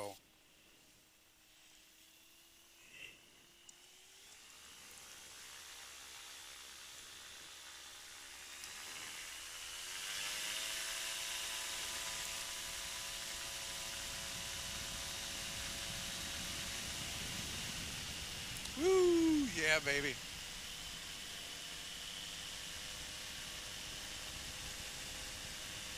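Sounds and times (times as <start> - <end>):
hiss of air: 0.0 - 3.4, 14.8 - 20.4
aircraft engine and propeller: 2.9 - 25.9.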